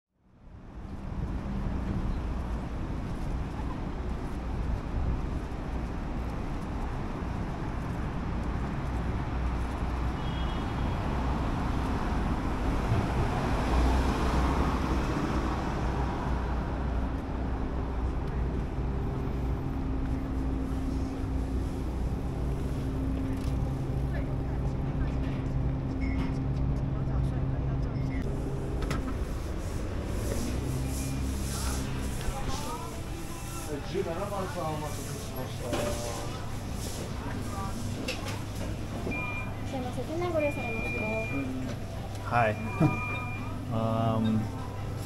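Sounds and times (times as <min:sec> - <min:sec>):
road traffic rumble: 0:00.2 - 0:45.0.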